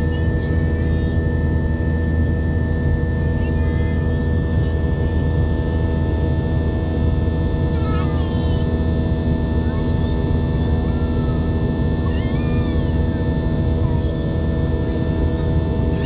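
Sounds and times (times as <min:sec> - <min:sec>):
jet engines droning: 0:00.0 - 0:16.0
steady humming tones: 0:00.0 - 0:16.0.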